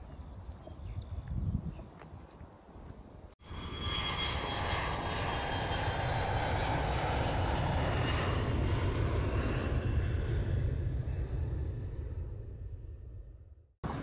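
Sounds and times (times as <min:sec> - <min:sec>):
faint outdoor ambience: 0:00.0 - 0:03.7
airplane engine: 0:03.4 - 0:14.0.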